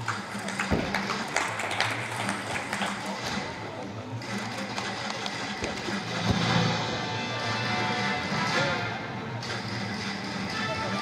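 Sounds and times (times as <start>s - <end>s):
spectators clapping: 0.0s - 3.4s, 4.4s - 5.9s
quiet background music: 0.0s - 11.0s
dull thump: 0.7s - 1.1s.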